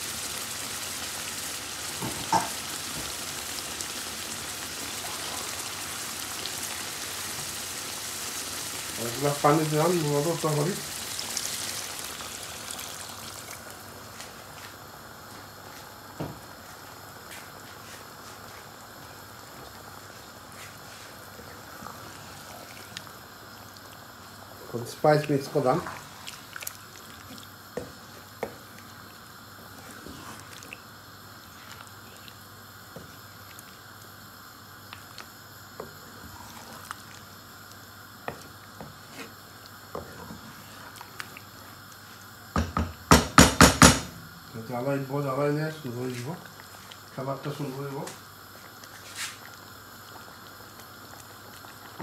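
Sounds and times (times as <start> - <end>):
curry simmering with bubbling pops: 21.4 - 24.6, 25.2 - 42.7, 46.4 - 52.0.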